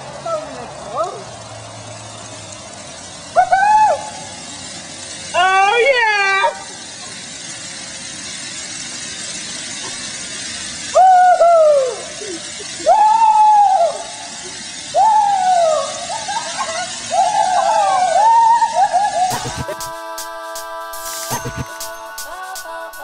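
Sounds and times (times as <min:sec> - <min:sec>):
steady hiss: 0:01.3 - 0:23.0
partygoers whooping: 0:03.4 - 0:04.4, 0:10.9 - 0:23.0.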